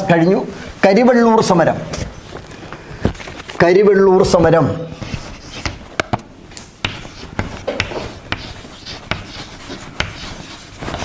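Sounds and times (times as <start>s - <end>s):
chalk scratching on blackboard: 4.9s - 5.8s, 6.8s - 11.0s
chalk tapping on blackboard: 5.0s - 6.2s, 6.8s - 11.0s.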